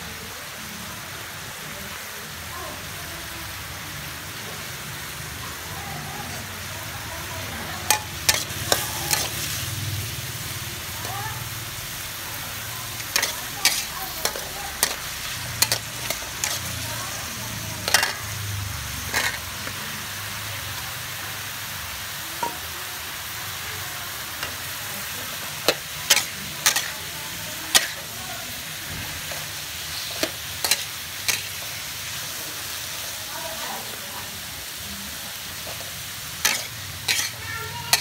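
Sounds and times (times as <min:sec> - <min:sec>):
food sizzling in a wok: 0:00.0 - 0:38.0
metal spatula scraping pan: 0:07.9 - 0:09.7, 0:13.0 - 0:16.8, 0:17.8 - 0:18.4, 0:19.0 - 0:19.6, 0:25.7 - 0:27.1, 0:36.4 - 0:38.0.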